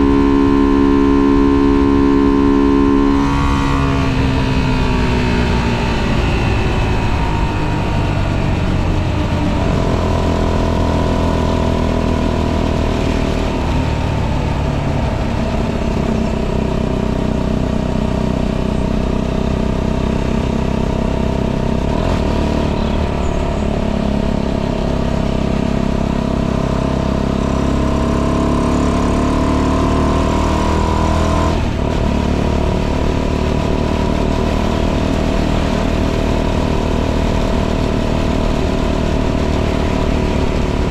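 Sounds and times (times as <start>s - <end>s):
motorcycle engine revving: 0.0s - 40.9s.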